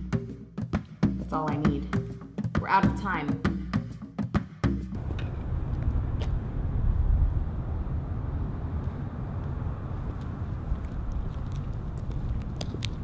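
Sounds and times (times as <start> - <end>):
low rumble of vehicle noise: 4.9 - 13.0.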